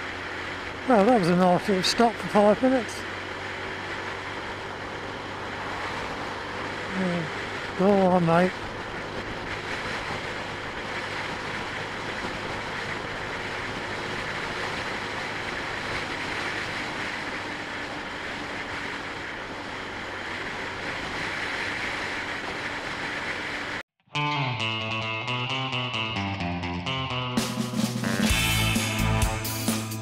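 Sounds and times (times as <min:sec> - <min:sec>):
scooter engine running: 0:00.0 - 0:23.8, 0:27.4 - 0:30.0
wind rush on microphone: 0:03.0 - 0:23.8
rock music with guitar and drums: 0:24.1 - 0:30.0.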